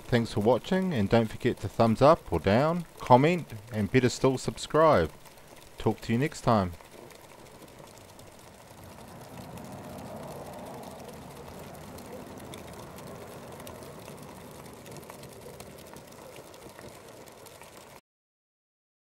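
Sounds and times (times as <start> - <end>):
alcohol stove flame rushing: 6.8 - 18.0.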